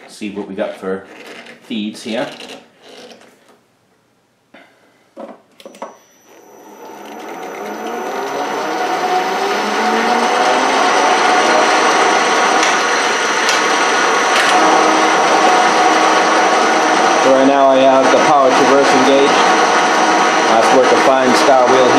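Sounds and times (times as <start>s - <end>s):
lathe spinning with whine: 5.7s - 21.9s.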